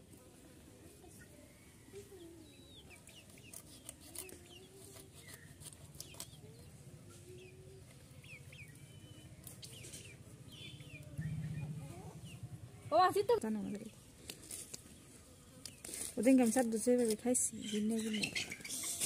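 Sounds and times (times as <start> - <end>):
small birds chirping: 1.0 - 19.0
hens clucking: 17.6 - 19.0.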